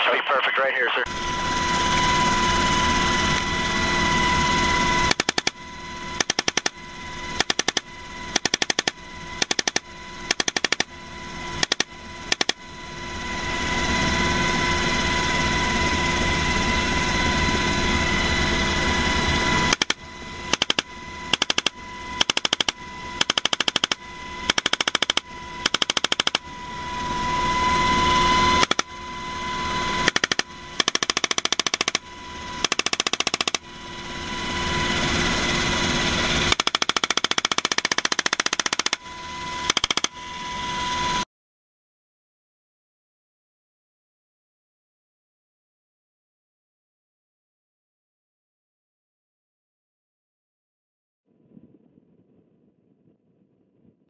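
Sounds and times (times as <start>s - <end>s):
helicopter high whine: 0.0s - 41.2s
machine gun firing bursts: 5.0s - 5.6s, 6.2s - 6.7s, 7.4s - 10.9s, 11.6s - 12.6s, 19.7s - 26.4s, 28.6s - 28.8s, 30.0s - 32.0s, 32.6s - 33.6s, 36.4s - 39.0s, 39.6s - 40.1s.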